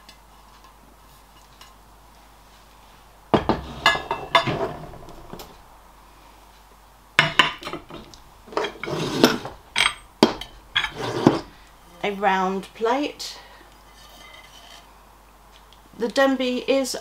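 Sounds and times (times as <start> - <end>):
plates clinking and clattering: 3.4 - 5.5, 7.2 - 11.5.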